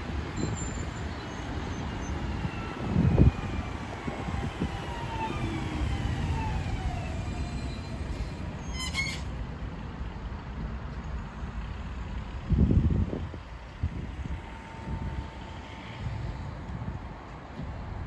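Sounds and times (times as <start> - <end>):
tram motors whining: 0.0 - 9.4.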